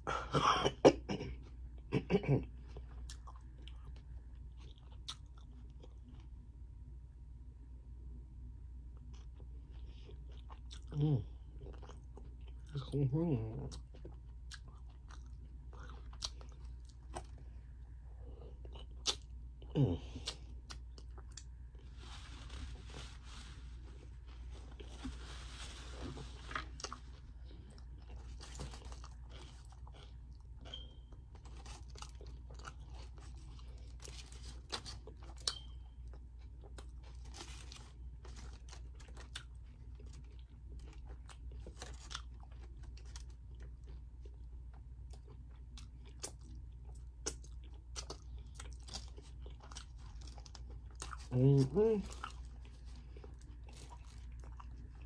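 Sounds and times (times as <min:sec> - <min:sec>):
person chewing and crunching: 0:00.9 - 0:06.5, 0:08.9 - 0:55.0
aluminium foil crinkling: 0:21.8 - 0:27.2, 0:37.1 - 0:39.3.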